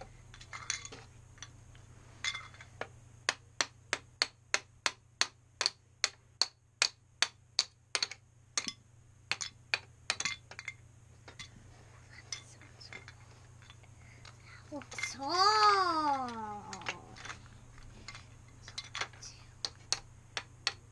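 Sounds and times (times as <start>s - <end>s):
plastic mallet tapping plastic blocks: 2.3s - 11.5s, 14.8s - 20.9s.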